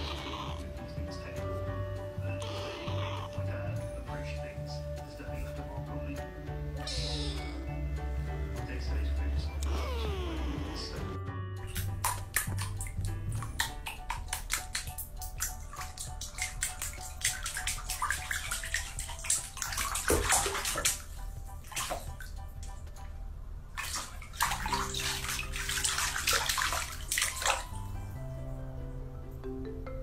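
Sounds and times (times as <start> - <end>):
bathwater splashing and sloshing: 0.0 - 3.8, 11.7 - 28.2
background music: 0.0 - 30.0.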